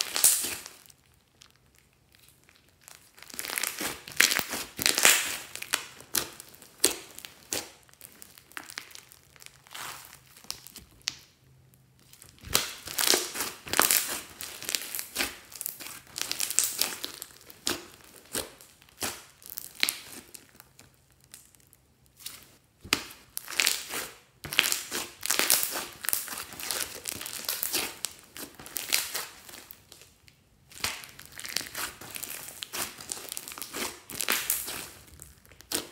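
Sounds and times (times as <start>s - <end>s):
hands squishing slime: 0.0s - 35.9s.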